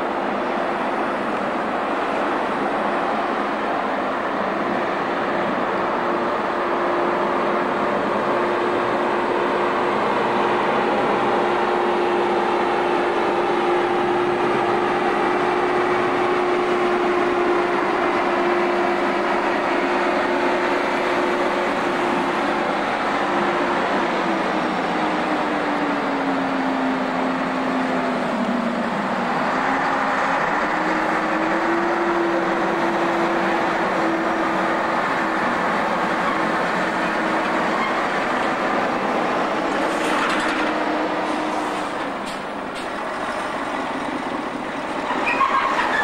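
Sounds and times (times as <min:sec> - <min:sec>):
lorry diesel engine running: 0:00.0 - 0:46.0.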